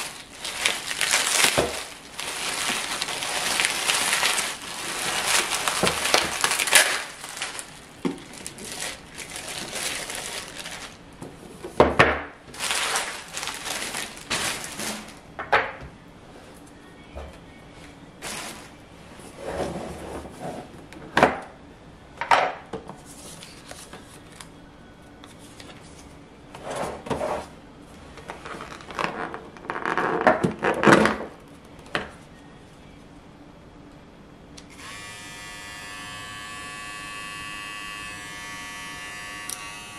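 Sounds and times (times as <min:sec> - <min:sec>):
packaging rustling: 0:00.0 - 0:11.0, 0:12.5 - 0:15.2, 0:18.2 - 0:18.8
bubble wrap crinkling: 0:00.0 - 0:11.1, 0:12.5 - 0:15.2, 0:18.2 - 0:18.8, 0:28.3 - 0:30.9.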